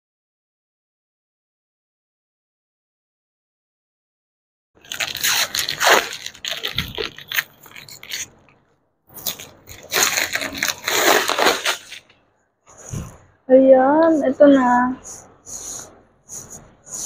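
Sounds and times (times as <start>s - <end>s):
plastic wrapping and tape tearing: 4.8s - 8.5s, 9.1s - 12.1s.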